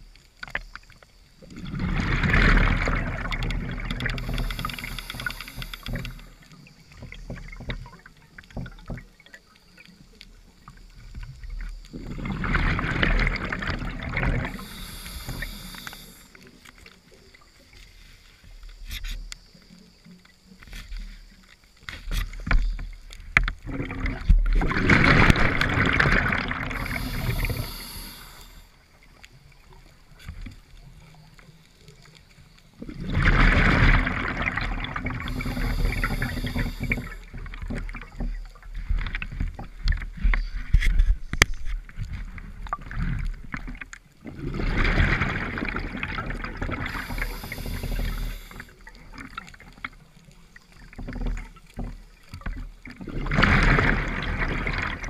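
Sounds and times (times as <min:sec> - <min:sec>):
faint crackling water noise: 0:00.0 - 0:55.0
diver breathing through regulator: 0:04.0 - 0:06.5, 0:14.4 - 0:16.4, 0:26.6 - 0:28.8, 0:35.2 - 0:37.3, 0:46.8 - 0:48.8.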